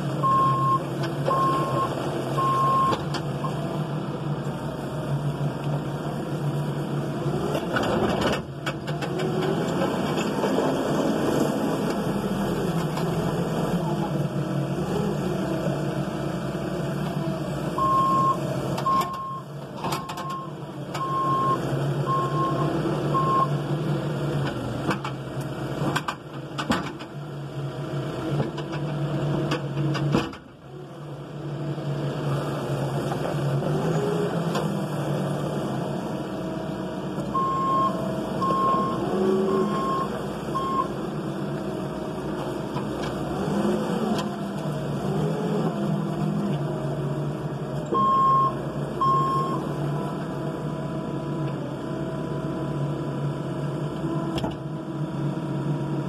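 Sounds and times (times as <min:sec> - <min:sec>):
diesel engine running: 0:00.0 - 0:56.0
reversing alarm beeping: 0:00.2 - 0:03.0.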